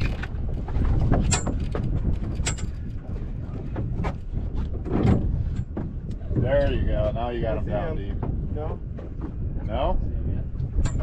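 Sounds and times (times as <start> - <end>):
fishing gear ticks and knocks: 0.0 - 6.9, 10.6 - 11.0
boat and sea rumble: 0.0 - 11.0
wind buffeting microphone: 0.0 - 11.0.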